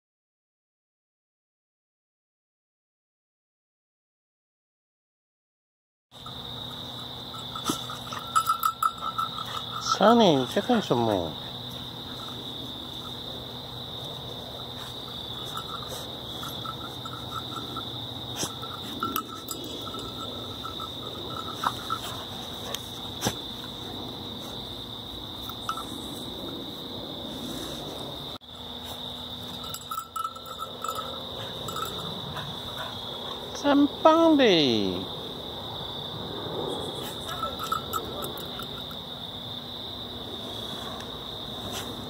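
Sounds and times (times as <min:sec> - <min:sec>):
high-pitched insect drone: 0:06.2 - 0:27.2, 0:28.1 - 0:40.1.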